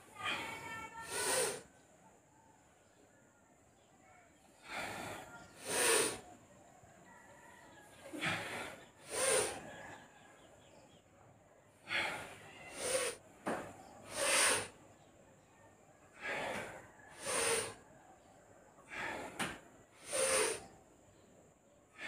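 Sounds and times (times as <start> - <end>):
man breathing forcefully: 0.2 - 1.6, 4.6 - 6.2, 8.1 - 9.7, 11.8 - 13.2, 14.0 - 14.8, 16.1 - 17.8, 18.8 - 20.6.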